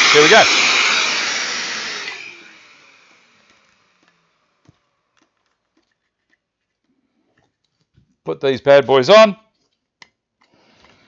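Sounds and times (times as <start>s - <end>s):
power joiner and dust extractor running: 0.0s - 4.7s
faint clicks and rustles: 4.0s - 8.2s.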